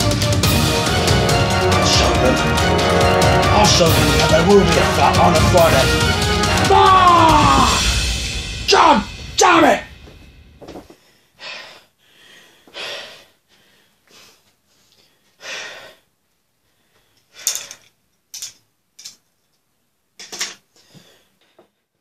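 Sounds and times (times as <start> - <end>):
man breathing hard: 10.9 - 17.9.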